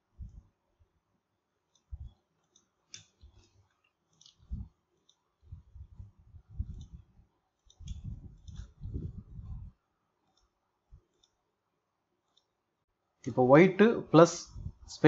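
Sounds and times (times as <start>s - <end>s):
computer mouse clicking: 1.7s - 5.3s, 6.6s - 9.0s, 10.2s - 11.4s.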